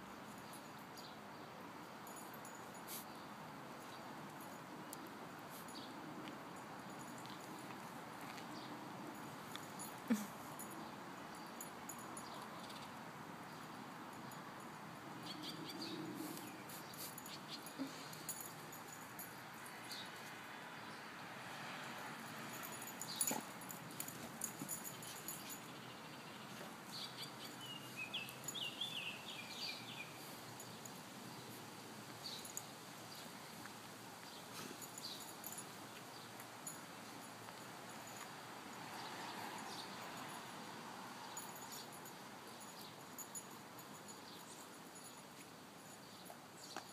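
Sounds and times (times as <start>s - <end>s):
puppies digging in dirt: 15.5s - 19.3s, 21.7s - 29.2s.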